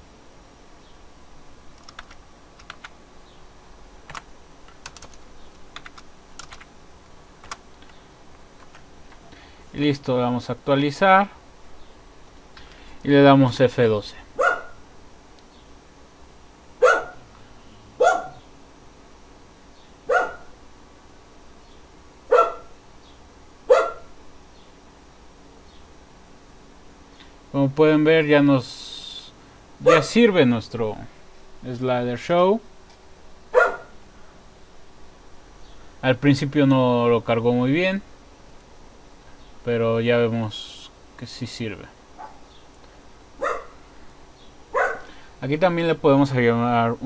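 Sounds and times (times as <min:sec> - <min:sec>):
keyboard keystrokes: 0:01.8 - 0:02.9, 0:04.1 - 0:05.2, 0:05.8 - 0:06.7
dog barking: 0:14.4 - 0:14.8, 0:16.8 - 0:17.2, 0:18.0 - 0:18.4, 0:20.1 - 0:20.5, 0:22.3 - 0:22.7, 0:23.7 - 0:24.1, 0:29.8 - 0:30.1, 0:33.5 - 0:34.0, 0:42.2 - 0:42.4, 0:43.4 - 0:43.8, 0:44.7 - 0:45.1.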